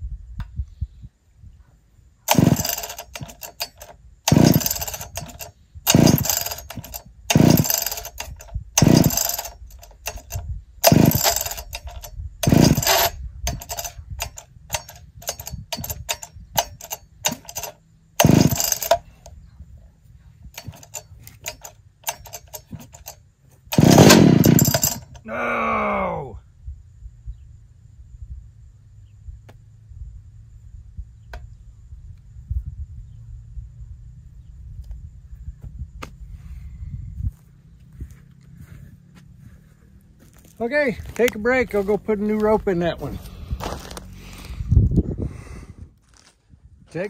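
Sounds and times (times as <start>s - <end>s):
chainsaw engine firing briefly: 2.3s - 19.2s, 20.6s - 25.2s
chainsaw starter cord pulls: 2.3s - 19.3s, 20.4s - 25.3s, 41.0s - 44.6s
starter clicks: 2.3s - 19.4s, 20.5s - 25.3s.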